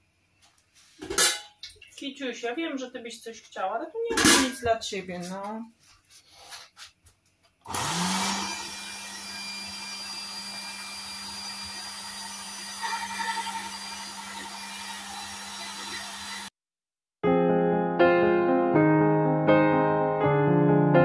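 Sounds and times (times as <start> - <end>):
electric meat grinder motor humming: 7.7 - 16.5.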